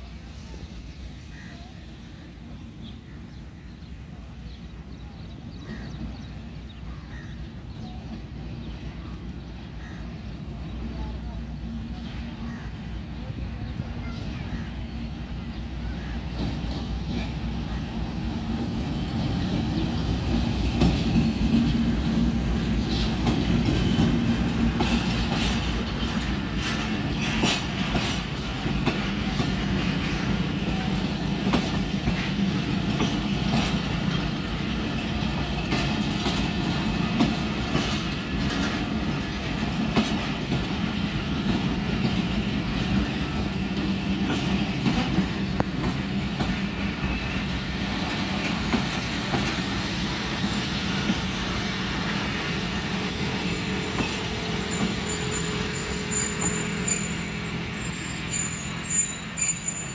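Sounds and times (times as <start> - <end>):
diesel locomotive engine: 0.0 - 59.9
train wheels clickety-clack: 15.7 - 59.9.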